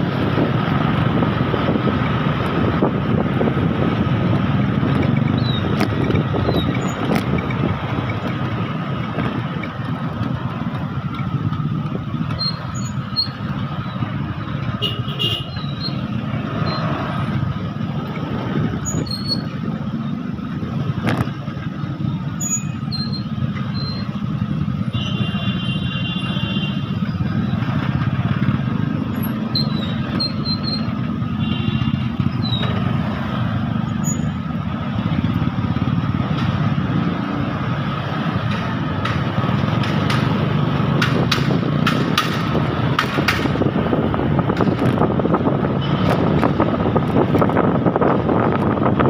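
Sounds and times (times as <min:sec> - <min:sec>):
wind buffeting microphone: 0:00.0 - 0:12.4, 0:38.3 - 0:49.0
traffic engines idling: 0:00.0 - 0:49.0.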